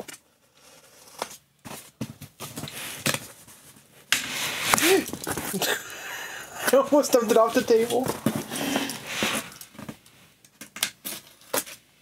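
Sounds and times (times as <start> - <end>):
cardboard box scraping and rustling: 7.8 - 9.6.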